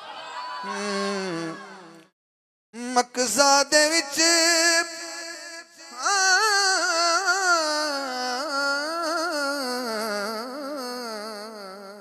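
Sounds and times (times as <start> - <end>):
man singing into a microphone: 2.8 - 12.0.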